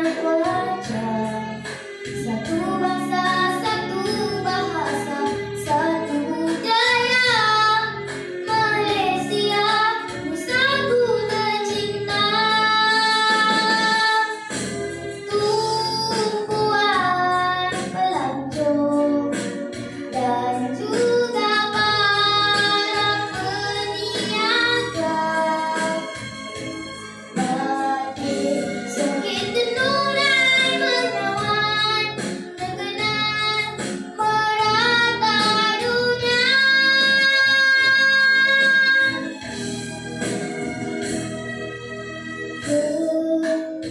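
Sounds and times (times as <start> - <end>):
girl singing into a microphone: 0.0 - 14.5, 15.2 - 26.2, 27.4 - 39.3, 42.6 - 43.9
musical accompaniment: 0.0 - 43.9.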